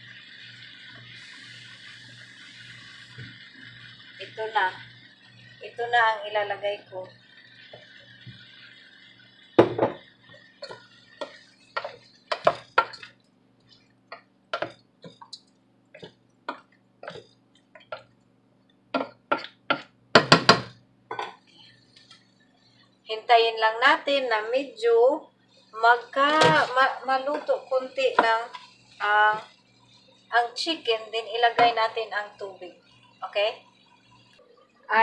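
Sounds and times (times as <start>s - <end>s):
utensils clinking against pot: 10.6s - 13.2s.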